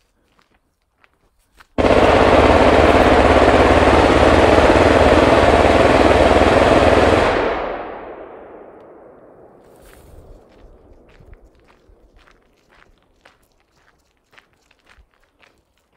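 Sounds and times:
machine gun firing: 1.8 - 8.7.

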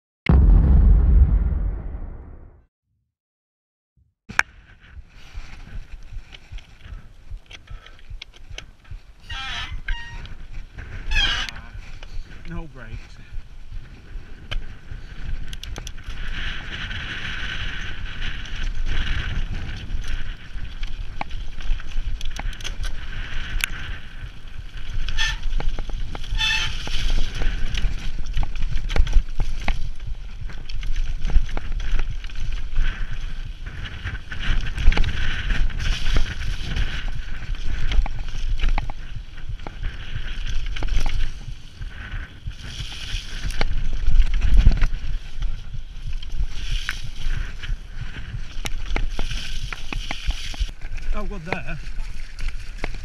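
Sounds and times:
bike tyres rumbling on dirt: 0.3 - 2.4, 4.5 - 53.0
wind buffeting microphone: 4.5 - 53.0
bike rattling and knocking: 13.7 - 53.0.

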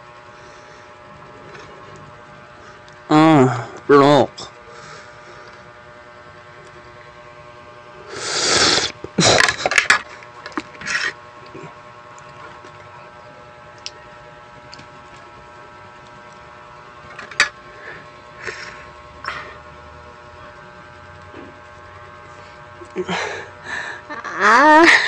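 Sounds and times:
faint steady hum: 0.0 - 25.0
close-miked eating noises: 8.2 - 23.5.

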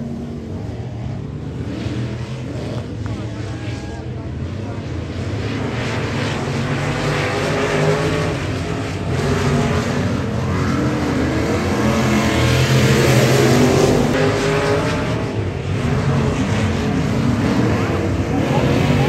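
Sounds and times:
race car engines revving: 0.0 - 19.0.

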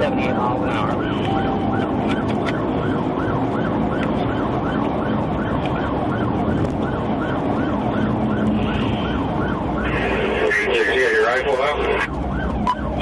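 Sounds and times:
car engine and road noise: 0.0 - 13.0
police siren yelping: 0.0 - 13.0.

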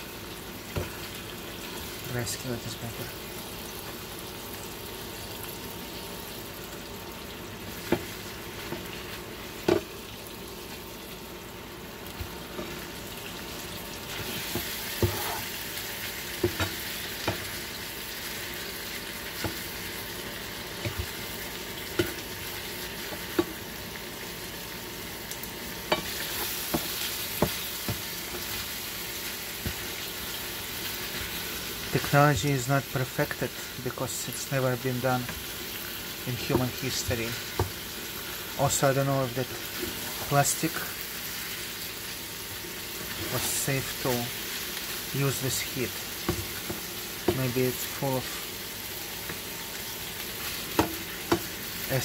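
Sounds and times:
meat sizzling in a skillet: 0.0 - 52.0
spatula knocking against pan: 26.7 - 28.5, 50.8 - 51.5.

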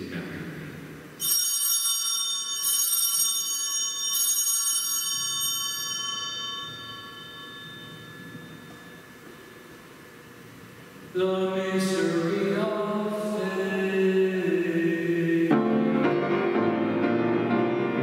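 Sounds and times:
altar bells ringing: 1.2 - 10.4.

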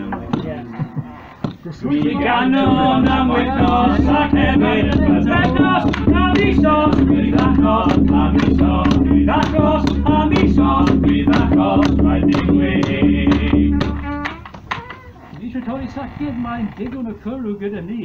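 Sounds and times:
percussive beat: 1.4 - 14.8
voices singing together: 1.7 - 14.5.

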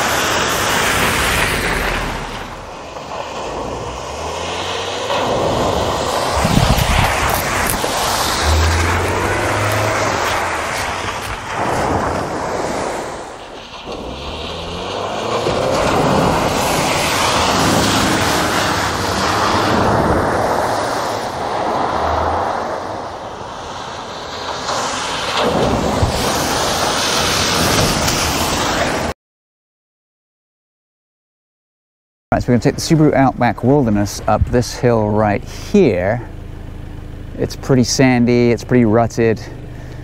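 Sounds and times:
car engine: 0.0 - 29.1, 32.5 - 40.0
tyres on dirt trail: 0.0 - 29.1, 32.3 - 40.0
wind noise on microphone: 5.3 - 14.2, 25.2 - 29.1.

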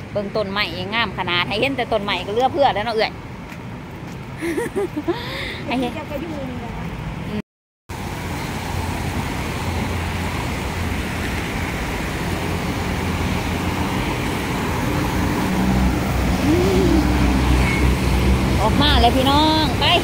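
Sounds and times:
traffic rushing noise: 0.0 - 20.0
vehicle engine humming: 7.9 - 20.0.

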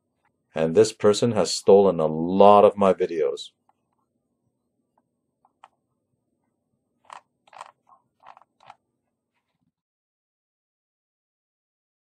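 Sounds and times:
computer mouse clicks: 7.1 - 8.8.

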